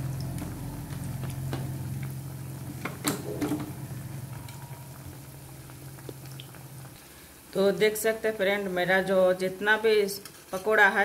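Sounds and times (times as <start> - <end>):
sharp crackles and pops: 0.0 - 3.0, 3.6 - 7.6
steady low hum: 0.0 - 7.6
oil bubbling and sizzling: 0.0 - 11.0.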